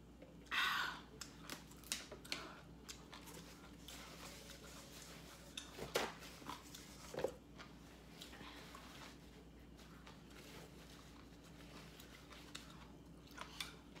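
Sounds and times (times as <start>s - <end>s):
person chewing noodles: 1.1s - 5.7s, 6.4s - 8.8s, 9.4s - 14.0s.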